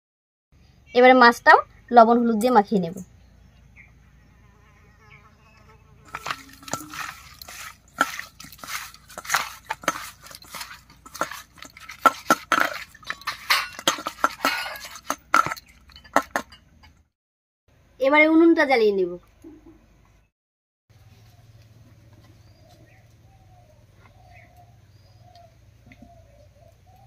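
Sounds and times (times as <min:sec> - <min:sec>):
wet squelching and rubbing: 0:06.1 - 0:15.6
fish slapping metal bowl: 0:06.1 - 0:16.6.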